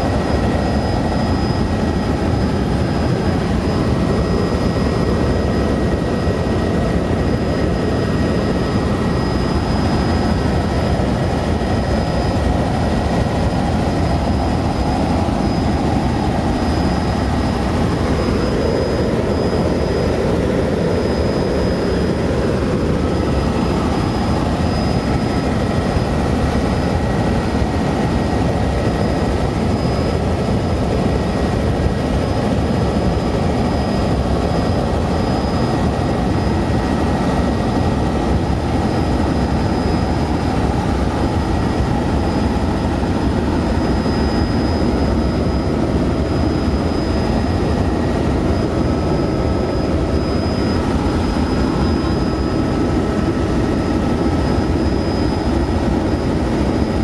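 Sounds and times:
helicopter rotor and engine drone: 0.0s - 57.0s.

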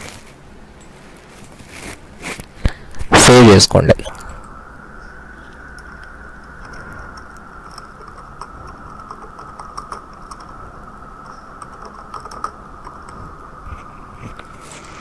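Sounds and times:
faint steady background tone: 0.0s - 15.0s.

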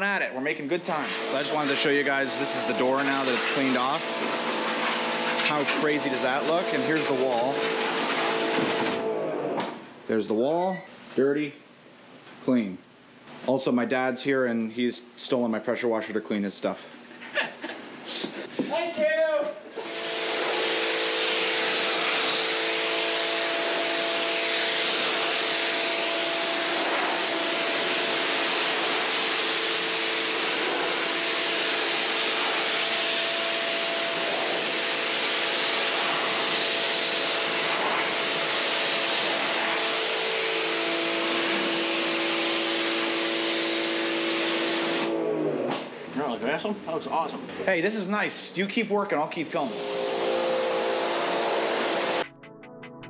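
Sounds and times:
pressure washer hum: 0.0s - 9.8s, 19.7s - 45.9s, 49.4s - 52.3s
pressure washer jet hissing: 0.8s - 9.0s, 19.8s - 45.2s, 49.4s - 52.2s.

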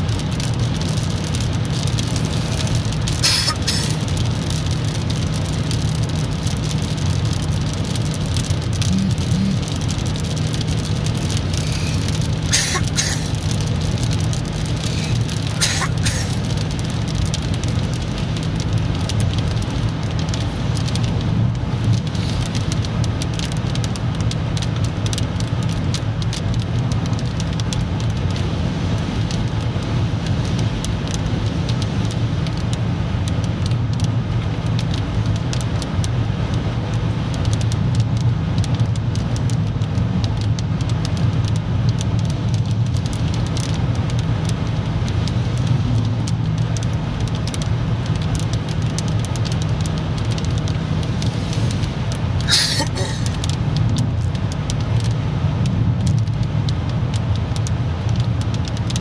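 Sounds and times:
road and engine drone in car: 0.0s - 59.0s
light ticks: 37.4s - 44.6s, 45.3s - 51.8s, 52.4s - 59.0s.

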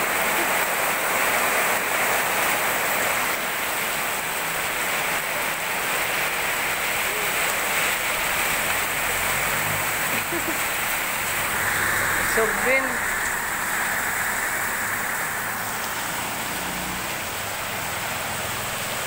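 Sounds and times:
heavy rain: 0.0s - 19.0s.

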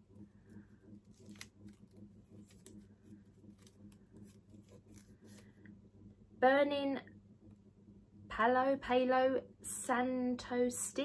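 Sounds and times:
low steady hum: 0.0s - 11.0s
paper rustling: 0.5s - 5.6s.

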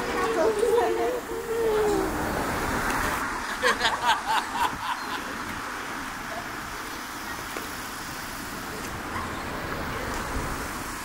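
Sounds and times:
faint voices: 0.0s - 3.2s
distant road traffic: 0.0s - 11.0s.

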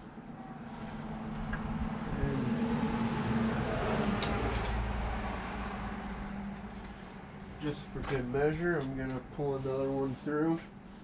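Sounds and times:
vehicle passing by: 0.3s - 8.8s.

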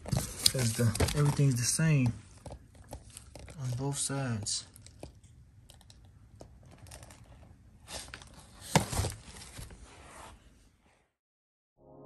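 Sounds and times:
cardboard rustling and scraping: 0.0s - 2.2s, 6.9s - 10.5s.

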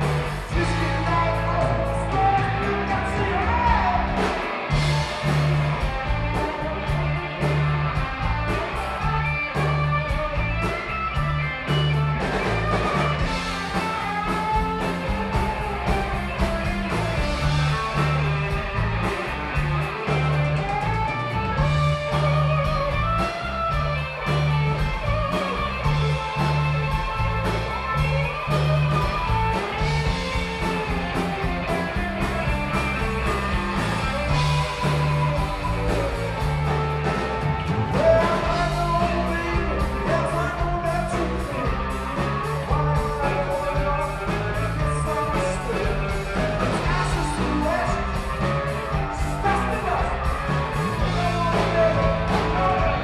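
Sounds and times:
bass guitar: 0.0s - 53.0s
drums: 0.0s - 53.0s
electric guitar lead: 0.0s - 53.0s.

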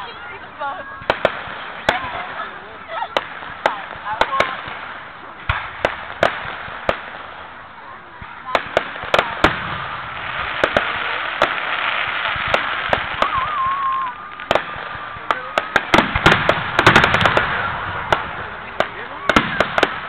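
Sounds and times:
firework bangs and crackles: 0.0s - 20.0s
wavering firework whistle: 13.0s - 14.5s.

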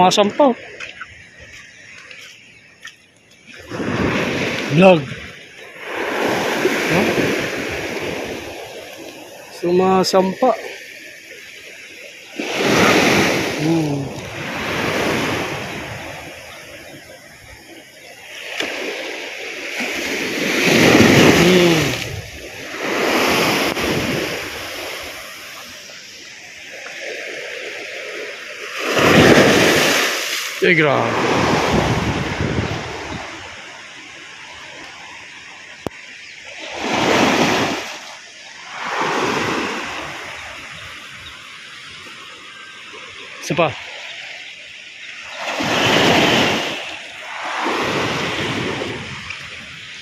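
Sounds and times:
waves washing up pebble shore: 3.5s - 17.2s, 18.2s - 26.0s, 26.6s - 35.2s, 36.6s - 43.9s, 45.1s - 50.0s
surf breaking on pebbles: 3.6s - 5.1s, 19.8s - 25.6s, 28.7s - 33.4s, 45.4s - 49.3s.

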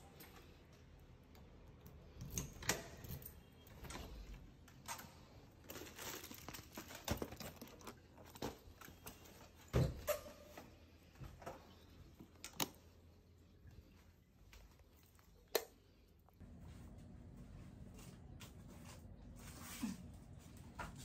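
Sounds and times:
knocks and rustles of handling: 0.0s - 21.0s
keys rattling in door lock: 2.2s - 3.7s.

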